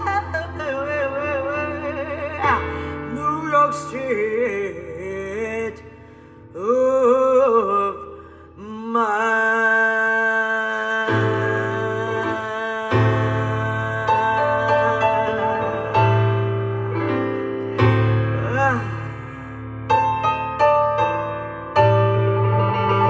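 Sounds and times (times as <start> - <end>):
person singing with vibrato: 0.0 - 19.7
bass: 0.0 - 23.0
piano: 0.0 - 23.0.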